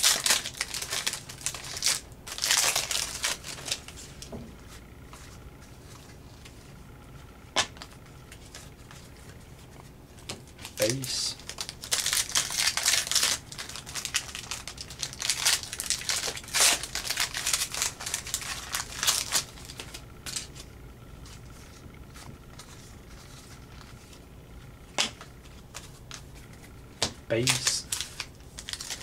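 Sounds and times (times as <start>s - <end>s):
foil wrapper crinkling: 0.0s - 4.3s, 10.3s - 20.7s, 27.4s - 29.0s
cards being handled: 24.9s - 29.0s.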